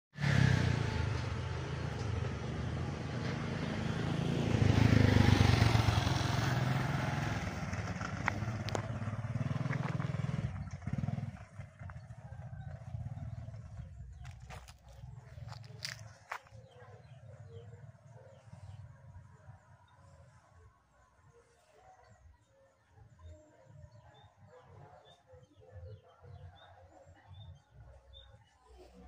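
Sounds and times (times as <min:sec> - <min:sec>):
low engine hum: 0:00.2 - 0:21.4
vehicles passing: 0:00.2 - 0:21.5.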